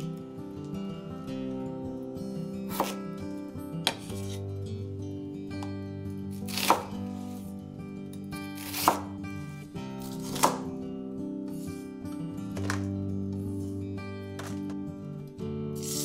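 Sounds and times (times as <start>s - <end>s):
soft background music: 0.0s - 16.0s
knife cutting vegetables: 2.7s - 3.0s, 3.8s - 4.4s, 6.3s - 7.5s, 8.5s - 9.1s, 10.0s - 10.7s, 15.8s - 16.0s.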